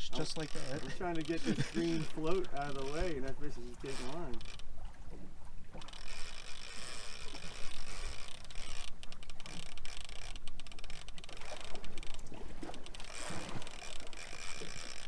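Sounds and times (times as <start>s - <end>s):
fishing reel drag clicking: 0.0s - 4.7s, 5.7s - 15.0s.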